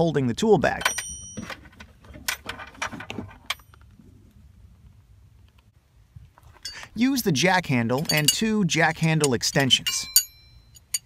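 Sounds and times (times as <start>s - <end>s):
metal tools clinking: 0.8s - 3.8s, 6.4s - 6.9s, 7.9s - 8.5s, 9.2s - 11.0s.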